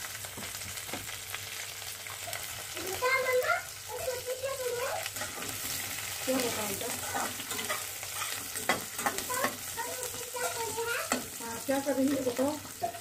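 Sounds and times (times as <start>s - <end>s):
onions sizzling in hot oil: 0.0s - 13.0s
metal spatula scraping pan: 5.1s - 9.8s.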